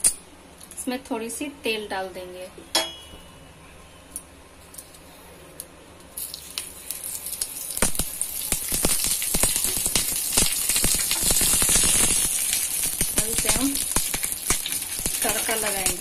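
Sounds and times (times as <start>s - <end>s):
oil sizzling and crackling: 6.1s - 16.0s.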